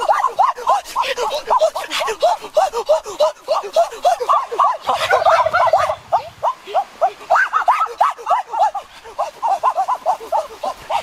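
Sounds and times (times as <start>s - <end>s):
flock of birds calling: 4.0s - 11.0s.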